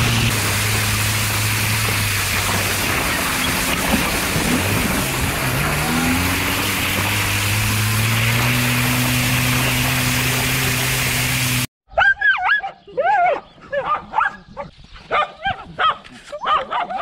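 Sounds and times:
tyres spraying slush: 0.0s - 11.7s
van engine running: 0.0s - 11.7s.

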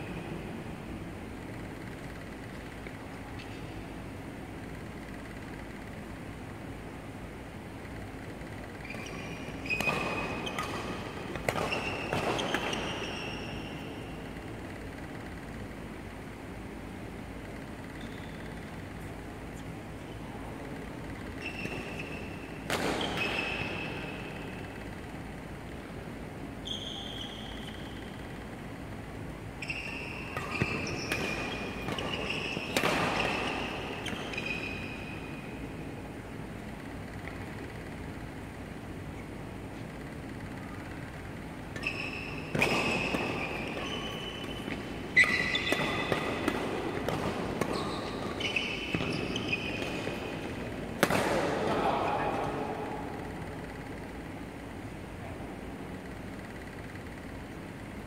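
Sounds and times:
shoes squeaking on court: 1.3s - 6.8s, 7.8s - 25.4s, 26.4s - 54.9s
racket hitting shuttlecock: 9.6s - 13.5s, 21.0s - 25.0s, 30.2s - 38.0s, 41.7s - 51.8s.

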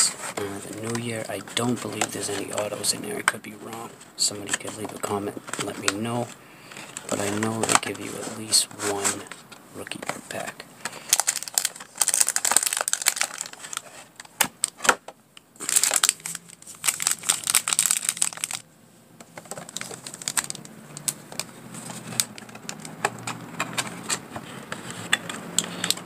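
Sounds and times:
faint low hum: 0.0s - 11.2s
foil wrappers crinkling: 0.0s - 15.0s, 15.6s - 18.6s, 19.4s - 25.0s.

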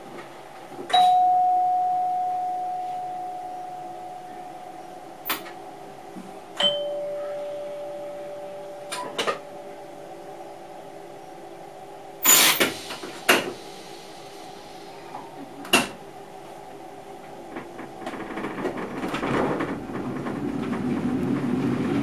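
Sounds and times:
steady electrical hum: 0.0s - 22.0s
doorbell chime ding dong: 0.9s - 4.5s, 6.6s - 9.2s.

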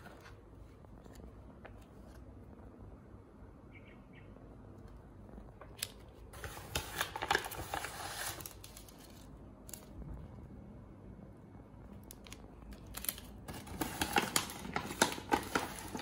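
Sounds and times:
plastic sachets crinkling: 5.8s - 9.9s, 12.0s - 16.0s.

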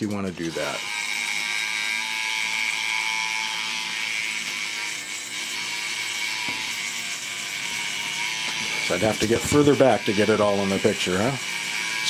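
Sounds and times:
toy robot motor whirring: 0.0s - 12.0s.

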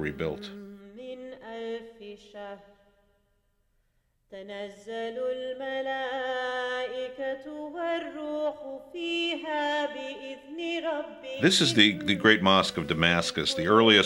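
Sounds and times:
person chanting: 0.0s - 0.8s, 11.4s - 14.0s.

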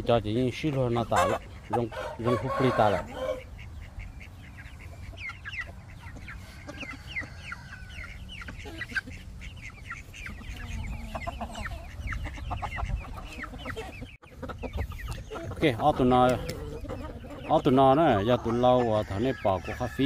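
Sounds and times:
chicken clucking: 0.0s - 20.0s
chicks peeping: 0.0s - 20.0s.

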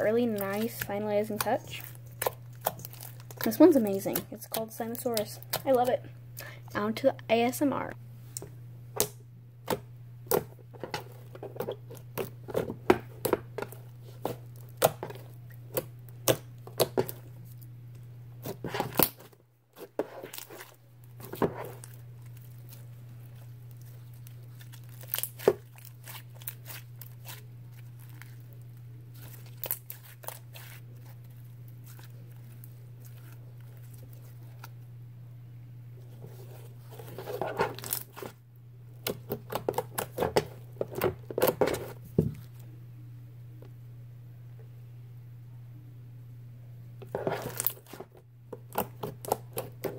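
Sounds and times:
slime squished by hand: 18.4s - 28.5s.

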